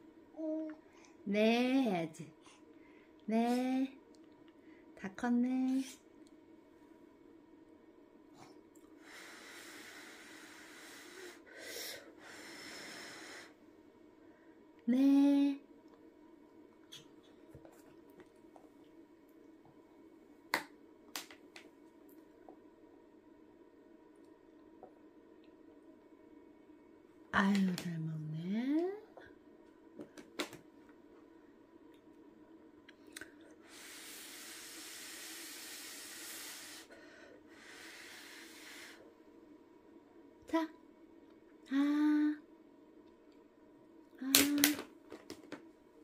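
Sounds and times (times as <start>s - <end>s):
steady hiss: 9.0s - 13.6s, 33.6s - 39.2s.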